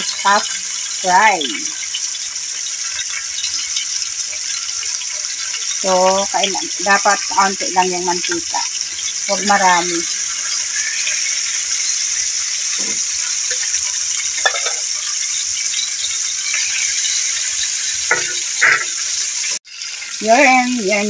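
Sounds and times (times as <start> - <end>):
chicken wings sizzling in a pan: 0.0 - 21.0
fork knocking in a pan: 14.4 - 14.8, 18.1 - 18.9.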